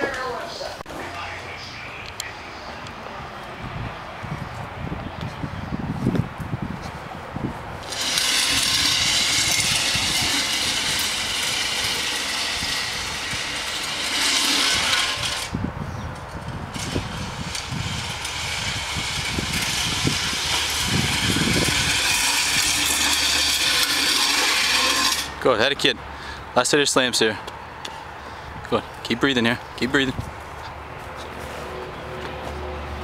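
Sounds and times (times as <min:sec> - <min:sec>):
sled scraping on asphalt: 0:07.8 - 0:15.6, 0:16.2 - 0:25.6.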